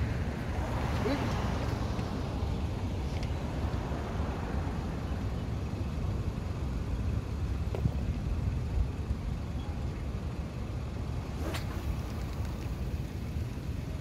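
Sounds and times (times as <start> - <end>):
low outdoor rumble: 0.0 - 14.0
fishing rod swishing: 11.4 - 12.8.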